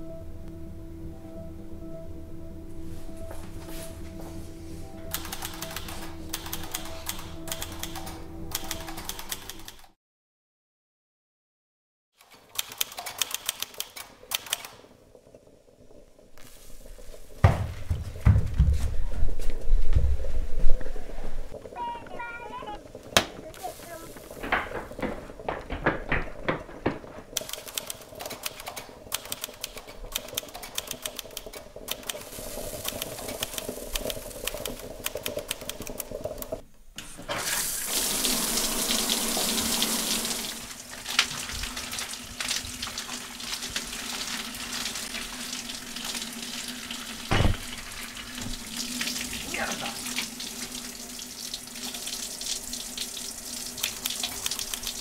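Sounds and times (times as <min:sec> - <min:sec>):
crackling clicks: 0:12.2 - 0:16.6, 0:25.7 - 0:36.8, 0:53.7 - 0:55.0
shower head spraying water: 0:37.4 - 0:41.0, 0:41.6 - 0:55.0.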